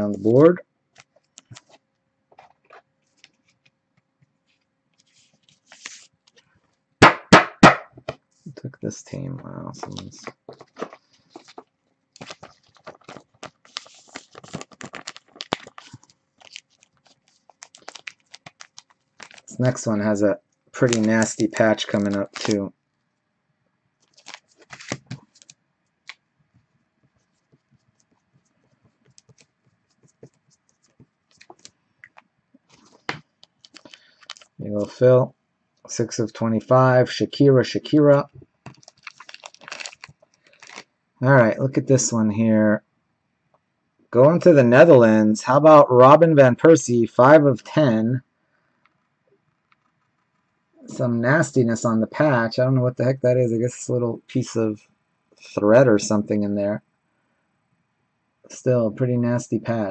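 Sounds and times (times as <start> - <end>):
plastic sleeve scrape: 5.0 - 6.2, 9.7 - 19.9, 20.8 - 22.7, 24.0 - 25.5, 38.7 - 40.9
card sleeve rustling and clicking: 9.8 - 19.6, 20.9 - 22.6, 24.0 - 26.2, 29.1 - 34.6, 38.7 - 40.9.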